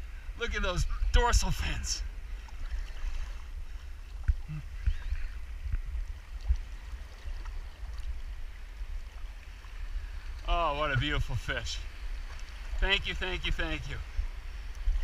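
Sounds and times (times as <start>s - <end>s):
wind rumble on microphone: 0.0s - 15.0s
water sloshing around legs: 2.3s - 10.5s.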